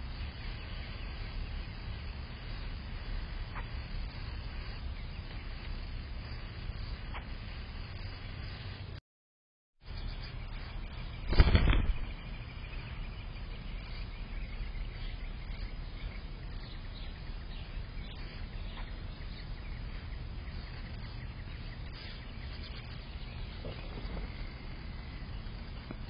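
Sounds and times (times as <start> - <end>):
low background hiss: 0.0 - 9.0, 9.9 - 26.0
faint bird chirps: 9.8 - 26.0
woodpecker wings flapping: 11.2 - 12.2.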